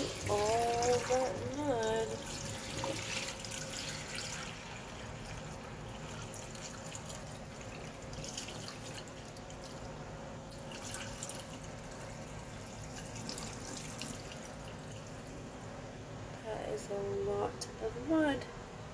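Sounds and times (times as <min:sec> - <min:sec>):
water poured into sink: 0:00.0 - 0:09.9, 0:10.5 - 0:15.4.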